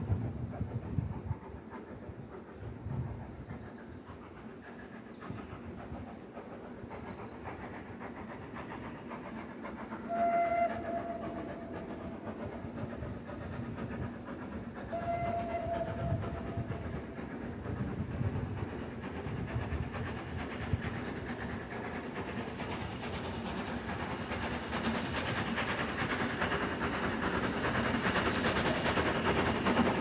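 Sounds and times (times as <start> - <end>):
steam train running: 0.0 - 30.0
steam locomotive whistle: 10.0 - 11.8, 14.9 - 16.7.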